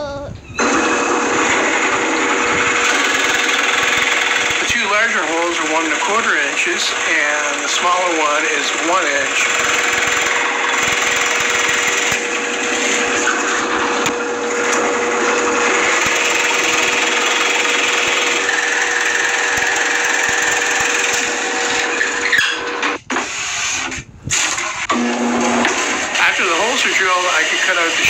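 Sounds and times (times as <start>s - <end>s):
drill press motor hum: 0.6s - 28.0s
drill bit rasping into wood: 2.6s - 13.4s, 15.7s - 22.6s.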